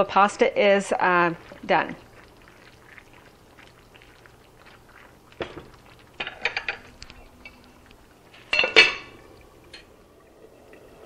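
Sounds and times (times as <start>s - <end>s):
glass lid clinking on pot: 6.2s - 7.6s, 8.5s - 9.9s.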